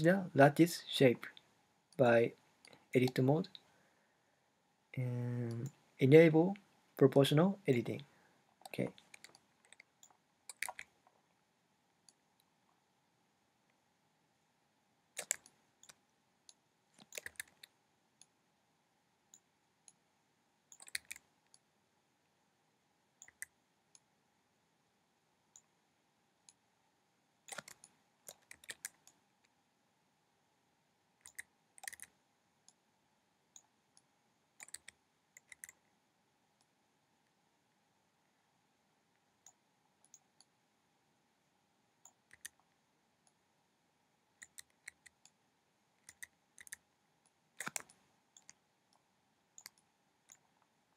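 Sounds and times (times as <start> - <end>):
faint steady hum: 0.0 - 50.9
keyboard and mouse clicks: 1.9 - 3.6, 8.6 - 11.2, 15.2 - 18.4, 20.7 - 21.7, 23.2 - 24.1, 27.5 - 29.2, 31.2 - 32.8, 33.6 - 35.8, 42.0 - 43.4, 44.4 - 45.4, 46.0 - 46.8, 47.6 - 49.0, 49.6 - 50.5.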